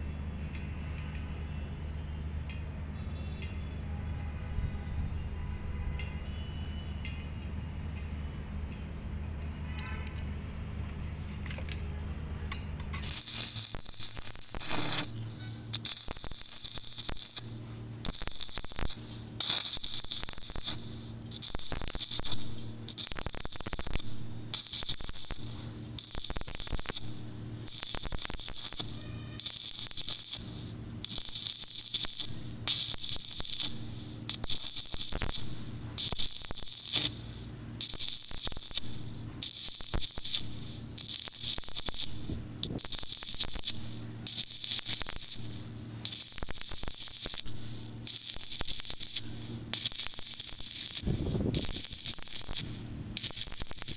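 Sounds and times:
low hum: 0:06.7 - 0:53.9
welding arc crackling: 0:10.8 - 0:53.9.

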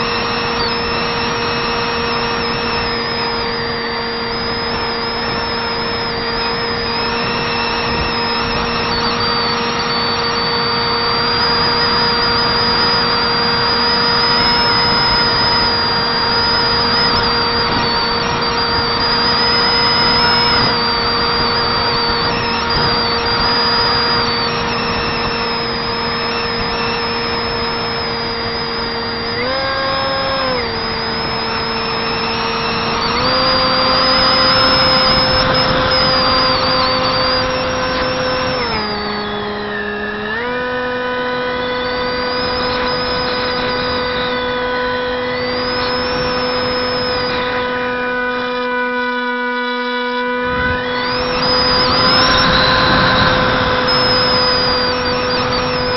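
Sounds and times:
electric motor buzzing whine: 0:00.0 - 0:55.9
wind rush: 0:50.5 - 0:55.9.

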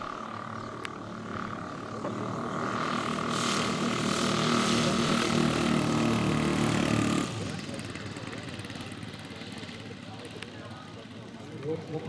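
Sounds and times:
model propeller engines: 0:00.0 - 0:12.0.

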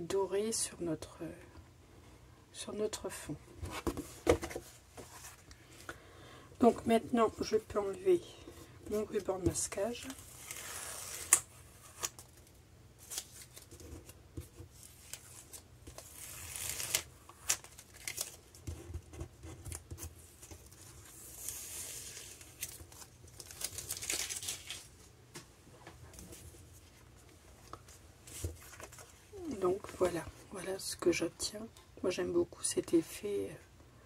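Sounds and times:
paper handling: 0:08.9 - 0:25.0, 0:26.1 - 0:29.2
tape ripping off paper: 0:10.0 - 0:12.4, 0:14.8 - 0:18.4.

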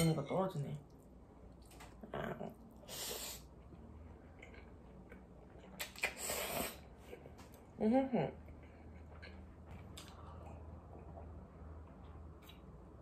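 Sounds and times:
person slurping noodles: 0:06.0 - 0:06.9.

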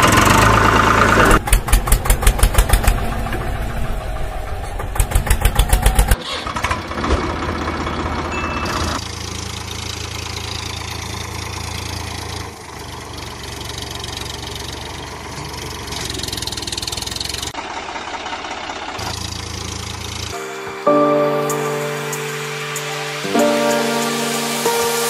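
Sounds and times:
tractor engine idling: 0:00.0 - 0:25.0.

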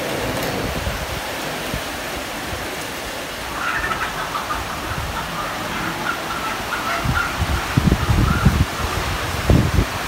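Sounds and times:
steady rushing noise: 0:00.0 - 0:10.0
bird calling: 0:03.4 - 0:08.9.

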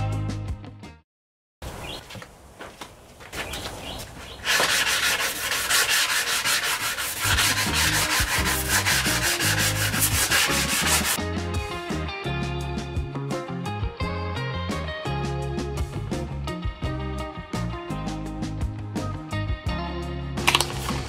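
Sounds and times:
sanding block rasping: 0:04.3 - 0:11.2.

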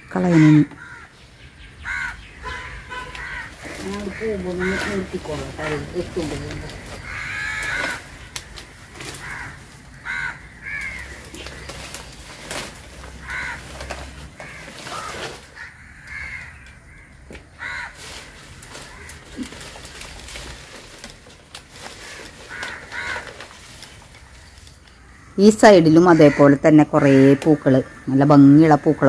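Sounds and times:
crows cawing: 0:00.0 - 0:20.8, 0:21.8 - 0:29.0.

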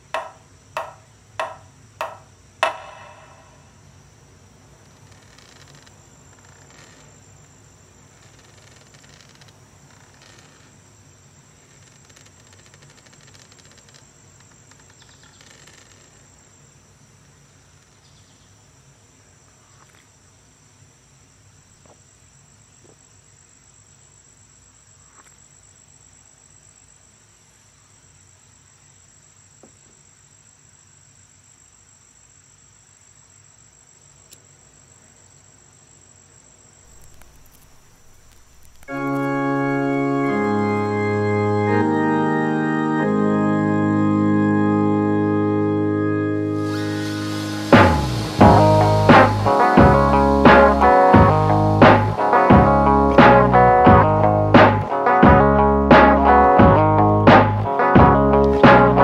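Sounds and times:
insects chirring: 0:00.0 - 0:42.0, 0:46.4 - 0:58.9
faint ticks: 0:36.9 - 0:39.3
low hum: 0:46.6 - 0:59.0.

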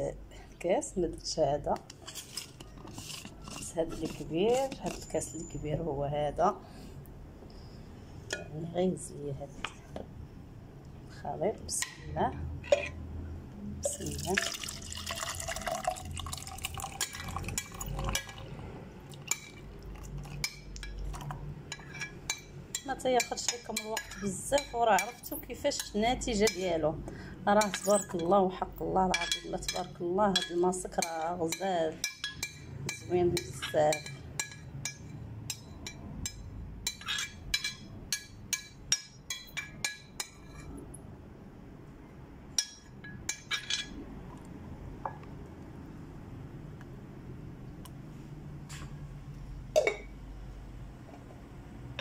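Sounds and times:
wet pouring into blender cup: 0:14.1 - 0:18.1
kitchenware clinking: 0:27.6 - 0:28.4, 0:29.1 - 0:40.8, 0:42.6 - 0:44.0, 0:49.8 - 0:50.1.

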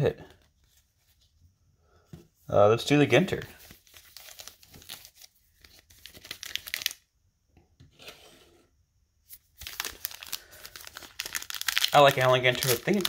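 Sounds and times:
wrapper crinkling: 0:03.5 - 0:07.0, 0:09.3 - 0:13.0
card pack wrapper tearing: 0:03.6 - 0:07.0, 0:09.6 - 0:13.0.

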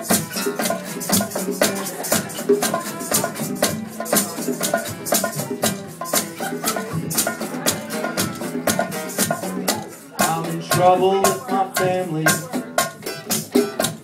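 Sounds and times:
acoustic guitars strumming: 0:00.0 - 0:14.0
bongos and hand percussion: 0:00.0 - 0:14.0.

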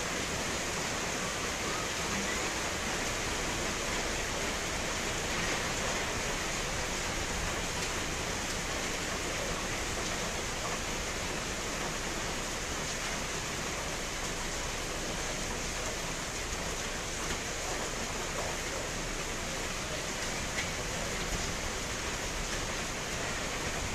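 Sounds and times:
steady rain falling: 0:00.0 - 0:23.9.

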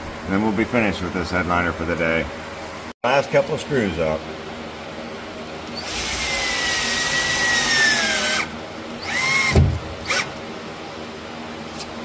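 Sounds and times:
cordless drill whining: 0:05.8 - 0:10.3.

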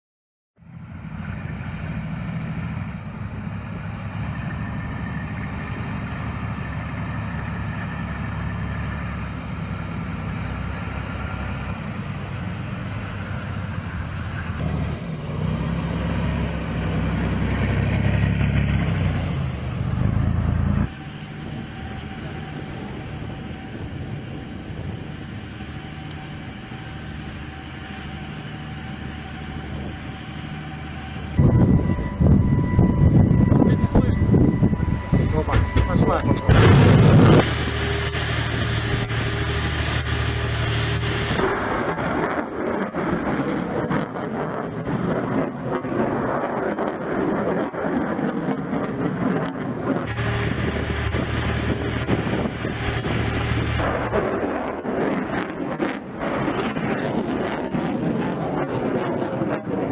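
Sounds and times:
heavy truck engines driving: 0:00.6 - 0:43.4, 0:49.8 - 0:57.0
steady hum: 0:20.5 - 0:42.8, 0:50.0 - 0:55.4.

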